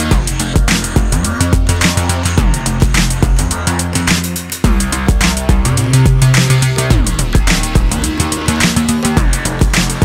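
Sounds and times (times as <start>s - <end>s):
electronic music with driving beat: 0.0s - 10.0s.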